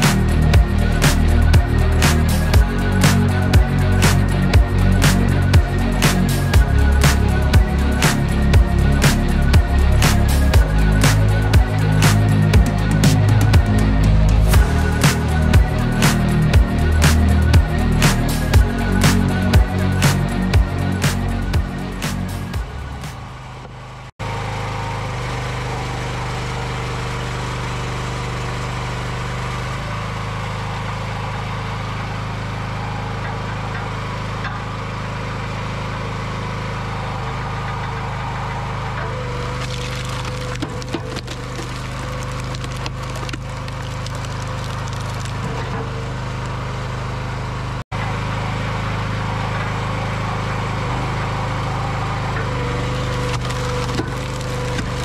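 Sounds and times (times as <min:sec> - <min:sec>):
log splitter engine running: 0:00.0 - 0:55.0
wood cracking and splintering: 0:39.4 - 0:46.8, 0:52.7 - 0:55.0.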